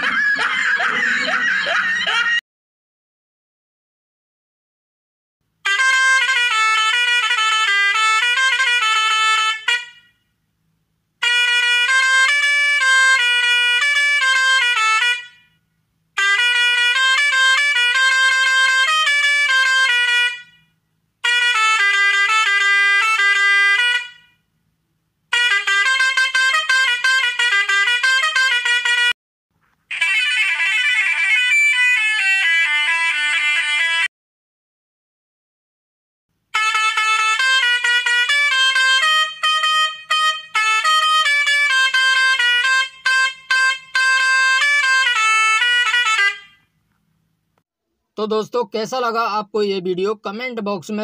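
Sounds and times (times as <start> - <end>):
truck musical horn melody: 5.6 - 10.4, 11.2 - 24.5, 25.3 - 29.2, 29.9 - 34.1, 36.5 - 46.8.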